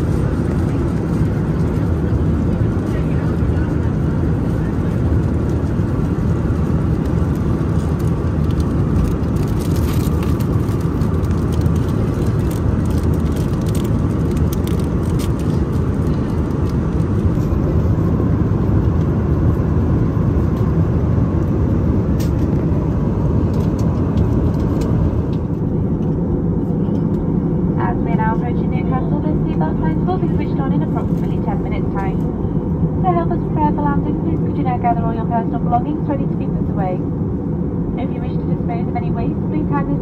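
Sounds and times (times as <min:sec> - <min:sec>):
airplane cabin roar: 0:00.0 - 0:40.0
plastic snack packet crinkling: 0:08.4 - 0:17.1.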